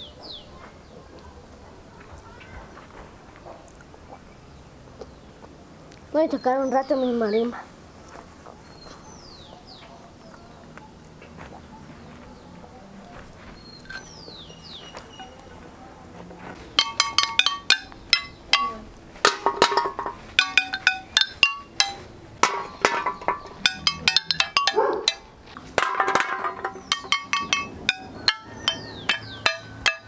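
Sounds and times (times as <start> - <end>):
descending whistled call: 13.6 - 15.5
toy marimba struck with sticks: 16.8 - 30.0.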